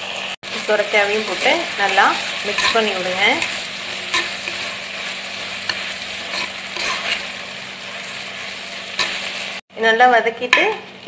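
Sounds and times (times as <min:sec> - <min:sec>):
vegetables sizzling in oil: 0:00.0 - 0:11.0
metal spoon scraping a pot: 0:02.2 - 0:07.4, 0:08.9 - 0:09.4.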